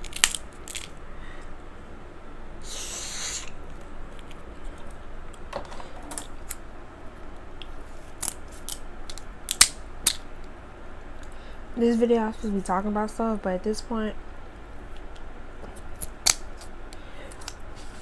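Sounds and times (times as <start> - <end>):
crab shells cracking: 0.0 - 0.9, 8.2 - 10.3
brief hissing: 2.6 - 3.6.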